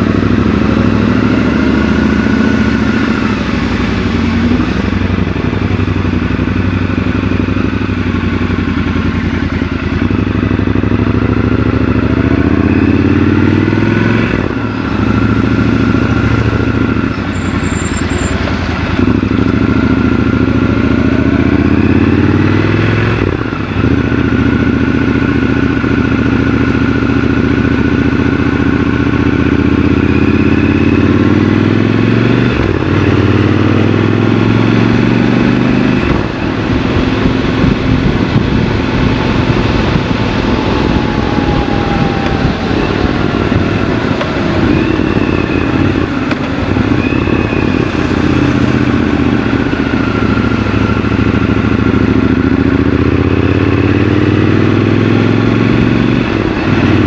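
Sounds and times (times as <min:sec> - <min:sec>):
motorcycle engine accelerating: 0:00.0 - 0:57.0.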